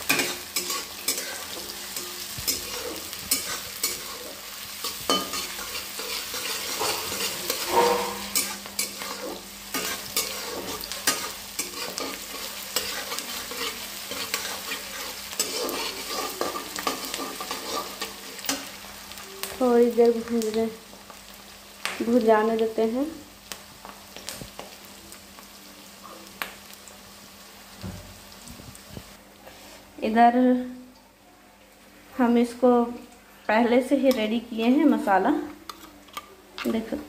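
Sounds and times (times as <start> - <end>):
spatula scraping and clicking pan: 0.0 - 18.8, 35.4 - 36.9
onions sizzling in hot oil: 0.0 - 30.9, 31.5 - 37.0.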